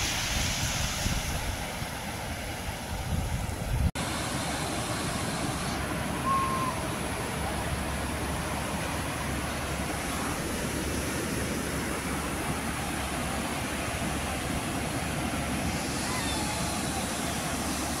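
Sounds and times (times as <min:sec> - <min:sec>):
surf breaking on beach: 0:00.0 - 0:18.0
wind rumbling on microphone: 0:00.0 - 0:18.0.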